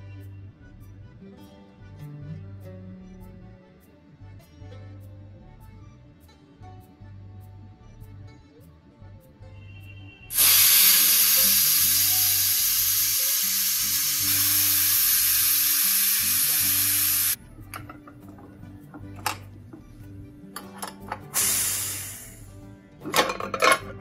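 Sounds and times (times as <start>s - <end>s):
pressure cooker steam hissing: 10.3s - 17.4s, 21.4s - 22.5s.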